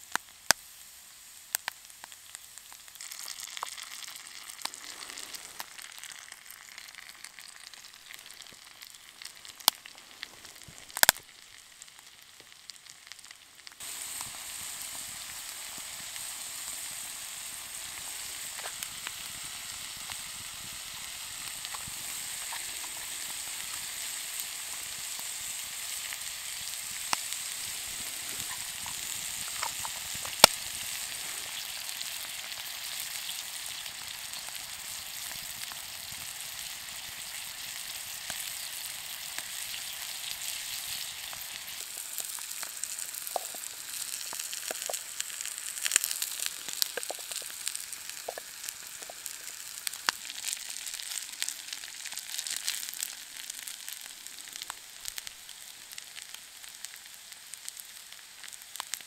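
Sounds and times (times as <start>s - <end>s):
onions sizzling in skillet: 0.0s - 59.0s
sharp pops: 10.6s - 11.2s, 45.8s - 49.4s.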